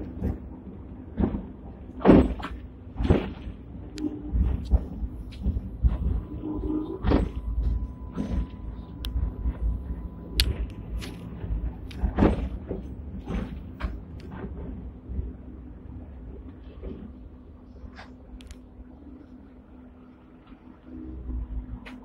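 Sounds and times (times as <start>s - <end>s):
tram running low rumble: 0.0s - 22.0s
car body clunks and rattles: 1.1s - 3.6s, 4.3s - 14.9s.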